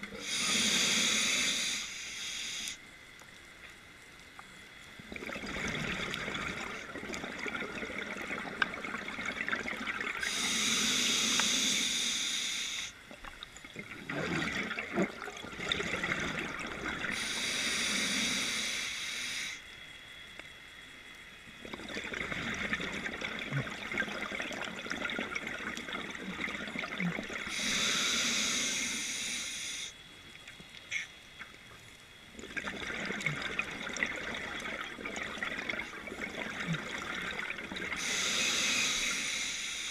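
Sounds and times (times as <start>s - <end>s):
regulator inhale hiss: 0.0s - 2.9s, 10.2s - 13.0s, 17.1s - 19.8s, 27.5s - 30.0s, 37.9s - 39.9s
exhaled air bubbling: 0.0s - 20.3s, 21.4s - 39.9s.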